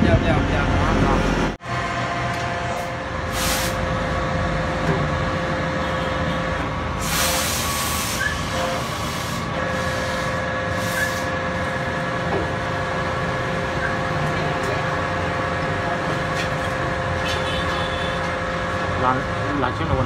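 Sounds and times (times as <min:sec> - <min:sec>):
workshop machinery humming: 0:00.0 - 0:20.0
loud hissing bursts: 0:03.3 - 0:03.9, 0:07.0 - 0:11.3.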